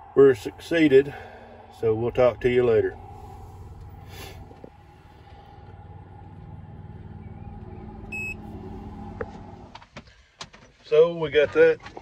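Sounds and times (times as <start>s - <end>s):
steady whine: 0.0s - 9.8s
tractor engine idling: 0.0s - 9.8s
short electronic beep: 8.1s - 8.4s.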